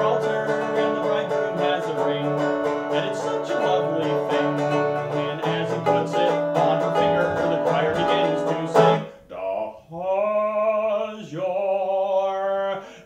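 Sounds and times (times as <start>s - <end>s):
resonator guitar strumming: 0.0s - 9.2s
man singing: 0.0s - 13.0s.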